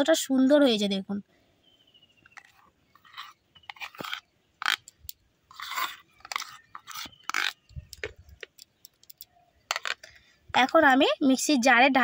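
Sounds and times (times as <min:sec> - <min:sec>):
spoon scraping plastic bowl: 0:02.3 - 0:04.9, 0:05.5 - 0:08.5.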